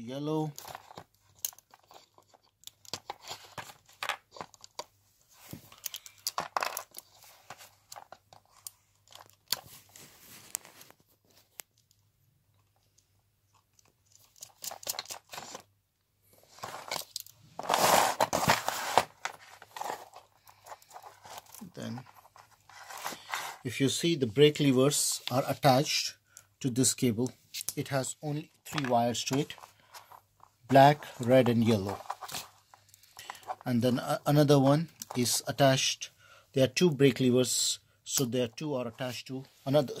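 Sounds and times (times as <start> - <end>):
rustling of wires: 0.3 - 12.0, 16.4 - 23.8, 27.5 - 33.8.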